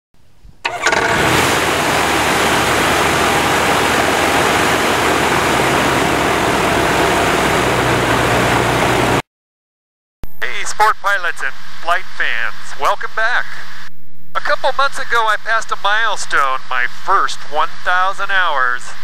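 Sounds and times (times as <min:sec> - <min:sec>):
light airplane engine running: 0:00.7 - 0:09.2
propeller wind rushing over microphone: 0:00.7 - 0:09.2.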